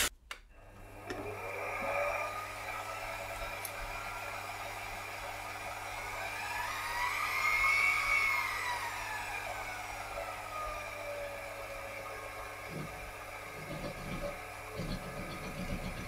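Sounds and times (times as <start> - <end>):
motor hum: 0.0 - 16.0
drill bit boring into metal: 12.7 - 16.0.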